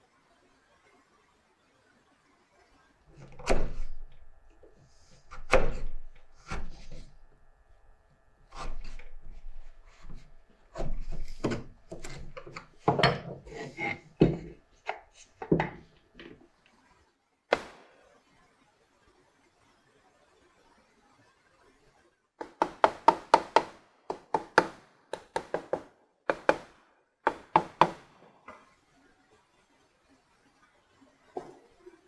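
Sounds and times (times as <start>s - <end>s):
wood scraping and rubbing: 8.5s - 15.8s
wood-on-wood knocks: 10.8s - 13.6s, 14.2s - 14.6s, 15.4s - 16.4s.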